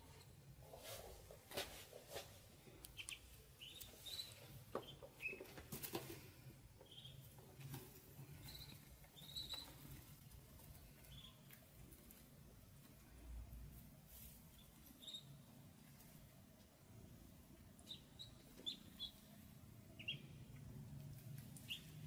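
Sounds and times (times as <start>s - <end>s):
ducklings peeping: 2.9s - 6.0s, 6.7s - 11.8s, 14.5s - 15.5s, 17.6s - 22.0s.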